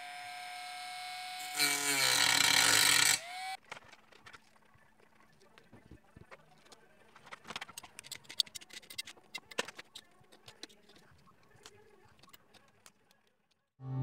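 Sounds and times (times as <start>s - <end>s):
plastic tray clicks and scratches: 6.1s - 13.2s.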